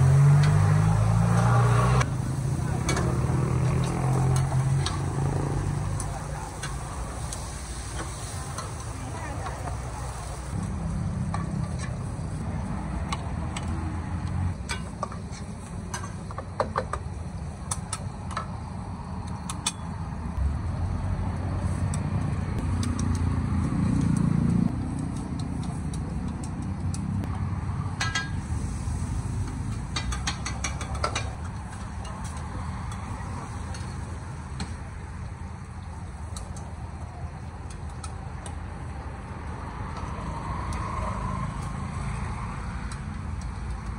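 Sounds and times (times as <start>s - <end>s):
metal utensils scraping a wok: 0.0s - 10.6s
steady low rumble: 20.3s - 30.6s.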